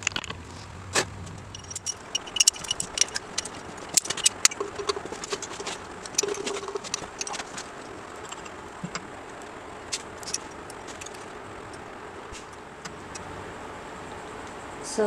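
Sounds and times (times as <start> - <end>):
steady background hum: 0.0 - 15.0
metal tool clicking and clinking: 1.5 - 9.0.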